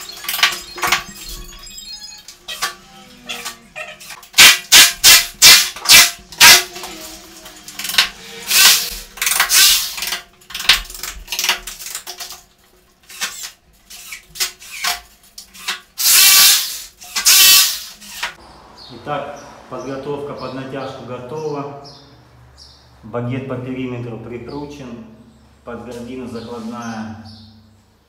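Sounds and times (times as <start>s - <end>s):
cordless drill bursts: 8.5s - 10.0s, 15.6s - 18.3s.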